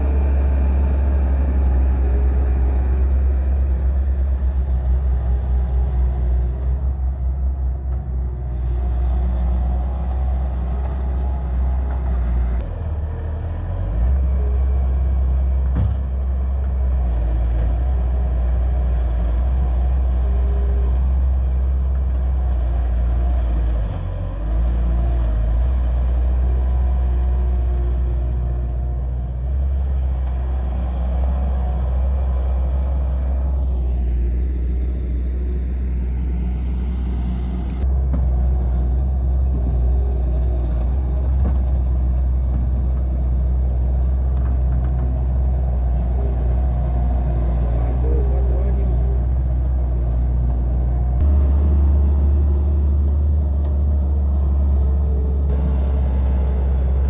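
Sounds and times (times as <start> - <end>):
diesel engine rumbling under load: 0.0 - 57.0.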